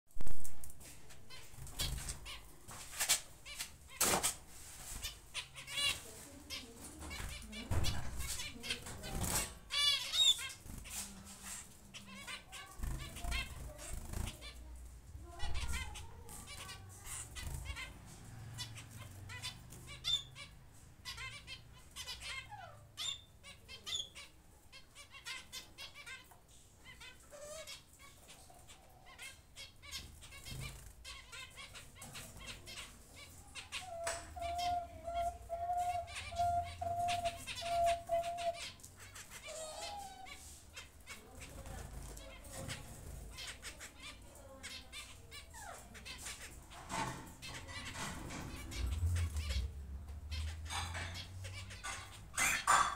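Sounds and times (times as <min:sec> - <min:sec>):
rapid high bird chirping: 0:08.2 - 0:11.0, 0:18.6 - 0:41.4.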